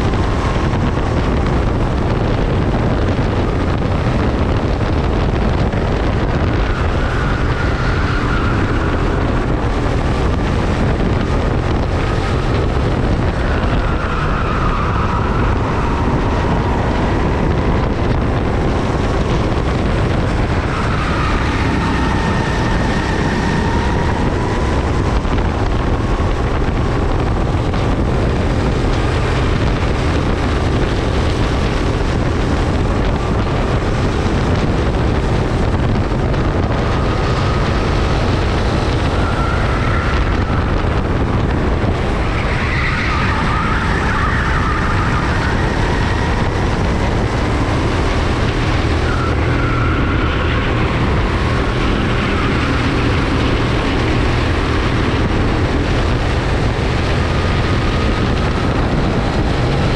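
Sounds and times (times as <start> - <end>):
go-kart engine racing: 0.0 - 59.9
other karts running: 0.0 - 59.9
wind buffeting microphone: 0.0 - 59.9.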